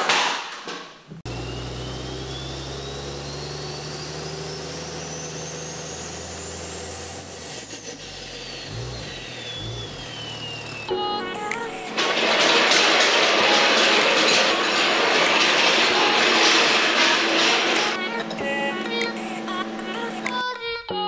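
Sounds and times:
thin whistle climbing: 0:01.3 - 0:06.8, 0:07.8 - 0:11.0
low mechanical drone: 0:01.3 - 0:20.5.

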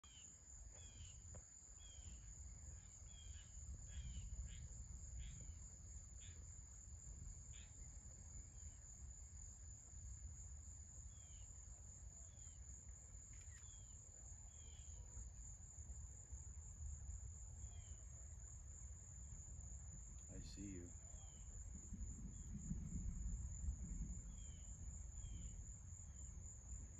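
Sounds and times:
insects droning: 0:00.0 - 0:26.9
faint low rumble: 0:14.7 - 0:26.9.

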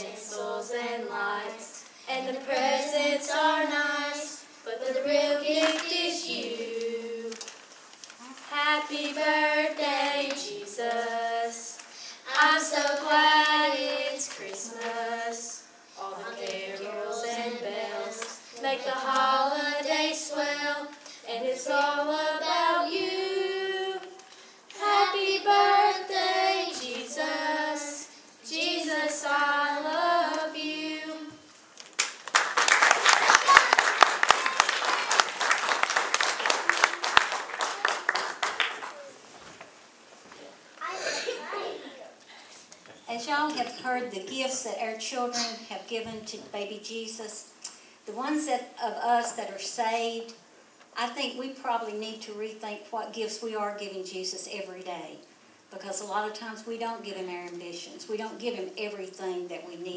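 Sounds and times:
children singing together: 0:00.0 - 0:07.4, 0:08.5 - 0:31.5.

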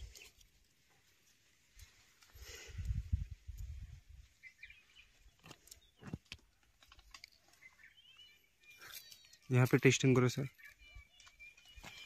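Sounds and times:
leaves rustling against phone: 0:00.0 - 0:12.0
faint bird chirps: 0:03.8 - 0:06.2, 0:07.3 - 0:12.0.

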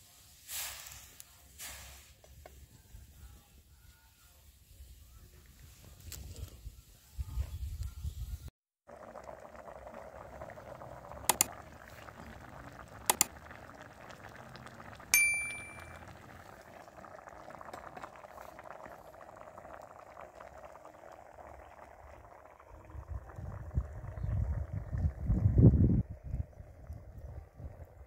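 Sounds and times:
broth boiling in a wok: 0:00.0 - 0:03.2, 0:08.8 - 0:28.0
bright bell-like ding: 0:15.2 - 0:16.0.

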